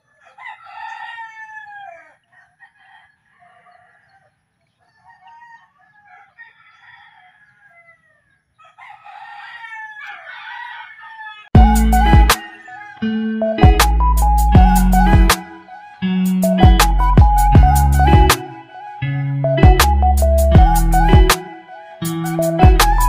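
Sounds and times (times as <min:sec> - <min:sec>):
roosters crowing: 0:00.0 - 0:19.0
loud music: 0:11.6 - 0:23.0.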